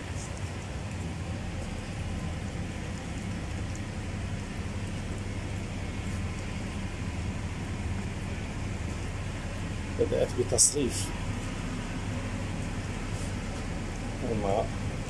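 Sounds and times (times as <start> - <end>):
electrical hum with hiss: 0.0 - 15.0.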